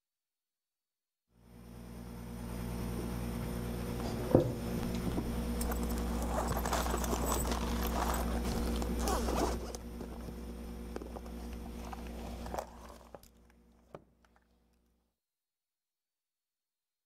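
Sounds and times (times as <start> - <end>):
low microphone hum: 1.7 - 13.2.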